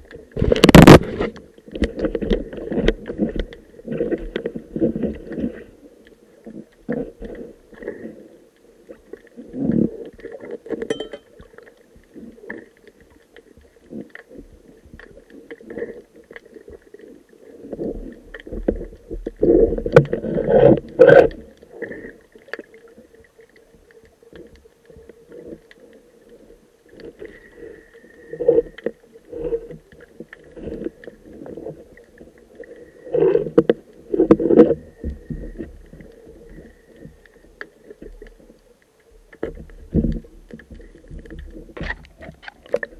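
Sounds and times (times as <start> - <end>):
underwater bubbles gurgling: 0.0 - 42.9
diving gear handling: 10.8 - 11.3.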